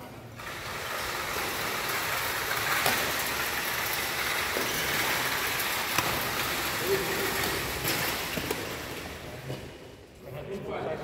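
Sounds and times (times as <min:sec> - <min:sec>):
rackets striking shuttlecock: 0:05.6 - 0:09.2.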